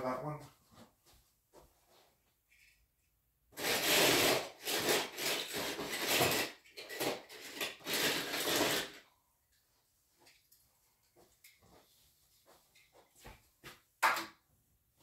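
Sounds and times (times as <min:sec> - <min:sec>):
rummaging through storage bin: 0:03.6 - 0:09.0.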